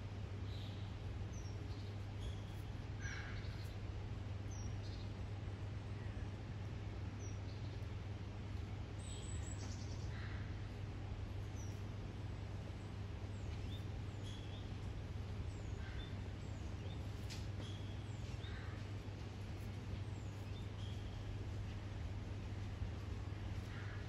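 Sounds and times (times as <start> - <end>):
steady low hum: 0.0 - 24.0.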